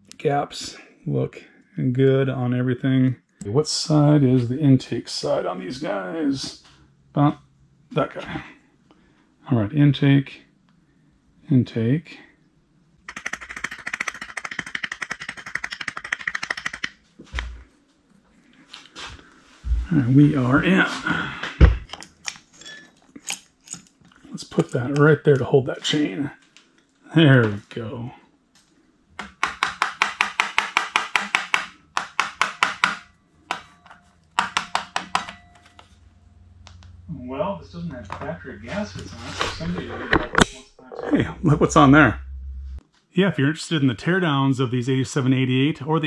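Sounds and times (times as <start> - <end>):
rapid mechanical clicking: 13.0 - 17.0.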